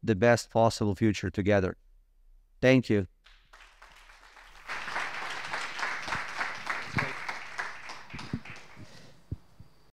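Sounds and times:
audience applauding: 3.3 - 9.3.

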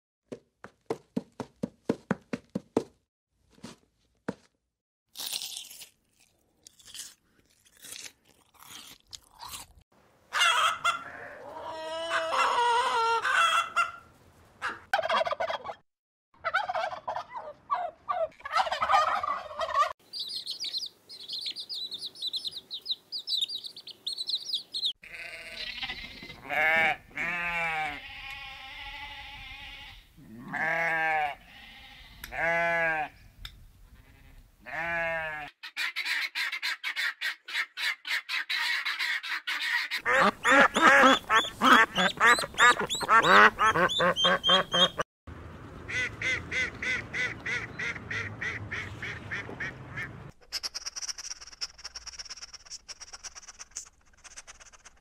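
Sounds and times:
turkey gobbling: 10.3 - 15.8, 16.4 - 19.9, 35.7 - 45.0
small birds chirping: 20.0 - 26.4, 40.0 - 45.0
goats bleating: 25.0 - 33.2, 34.0 - 35.5.

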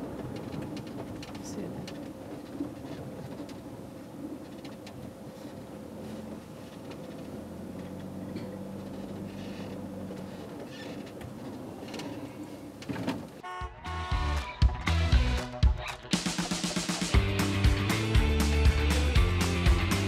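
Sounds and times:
gravel crackling under tyres: 0.0 - 13.4
van engine running low: 0.0 - 20.0.

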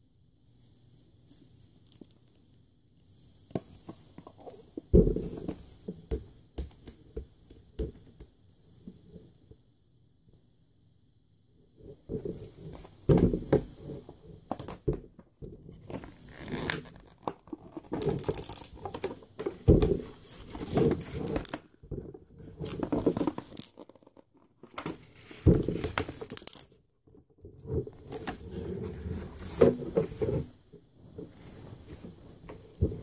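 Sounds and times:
plastic wrapping tearing and crinkling: 16.0 - 19.1.

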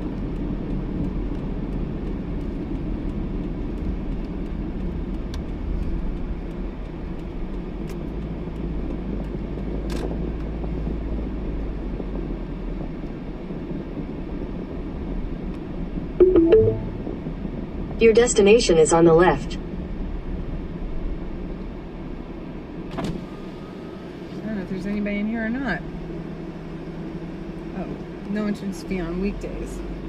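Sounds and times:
car road and engine noise: 0.0 - 16.2, 16.8 - 30.0.

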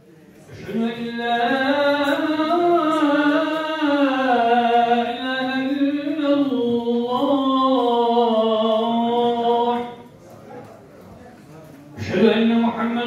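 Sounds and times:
man singing call to prayer: 0.4 - 10.1, 12.0 - 13.0.

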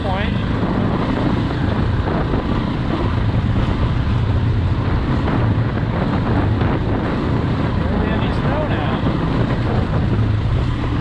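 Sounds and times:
dirt bike engine running: 0.0 - 11.0
wind noise on microphone: 0.0 - 11.0.

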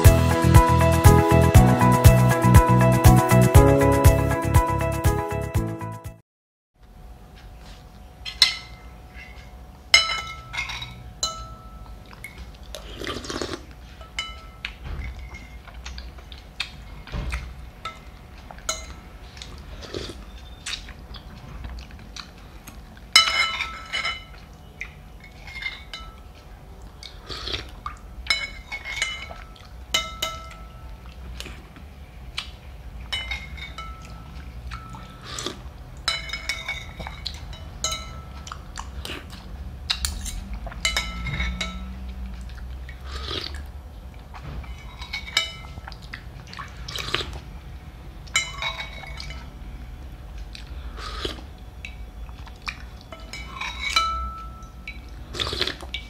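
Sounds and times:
spoon clinking against bowl: 9.9 - 12.0, 14.0 - 15.5, 18.7 - 19.0, 23.2 - 24.4, 28.3 - 30.9, 33.1 - 35.2, 36.1 - 38.6, 40.0 - 42.0, 48.4 - 49.5, 53.1 - 55.0
person sipping soup: 12.1 - 14.0, 18.4 - 23.0, 25.3 - 28.0, 34.2 - 37.5, 38.3 - 43.7, 44.7 - 47.5, 50.4 - 52.9, 55.1 - 56.0.

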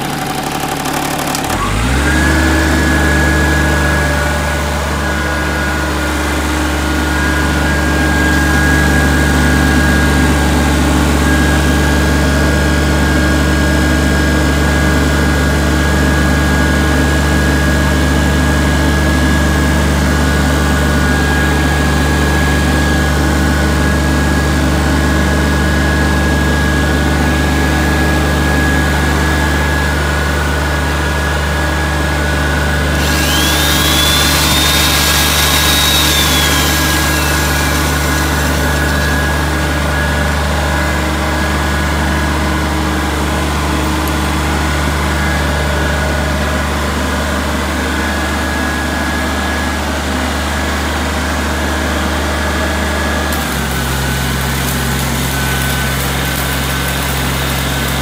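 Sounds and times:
power tool whining: 0.0 - 13.2, 32.7 - 40.9, 53.3 - 58.0
diesel generator humming: 0.0 - 46.5.

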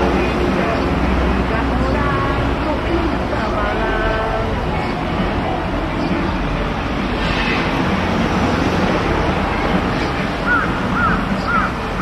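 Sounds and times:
bird calls: 10.0 - 12.0.

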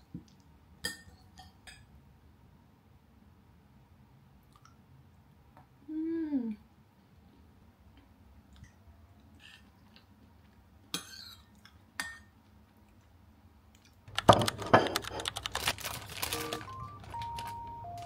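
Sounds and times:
plastic snack bag crinkling: 14.1 - 18.0
simple melody of single notes: 16.3 - 18.0.

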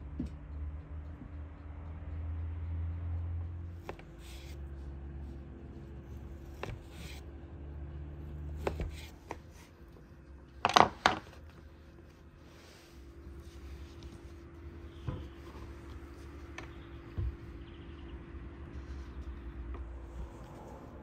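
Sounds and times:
low steady hum: 0.0 - 21.0
food preparation clicks and knocks: 10.6 - 11.5.

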